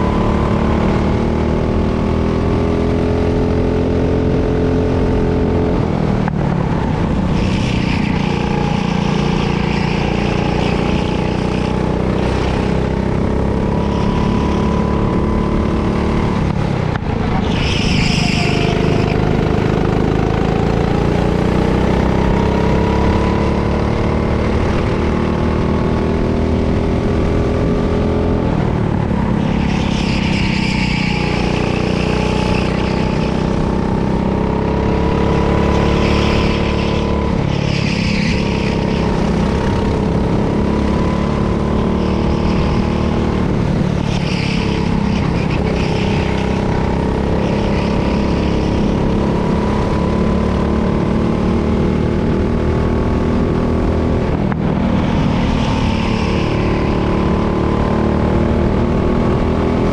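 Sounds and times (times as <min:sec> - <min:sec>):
kart engine accelerating: 0:00.0 - 0:59.9.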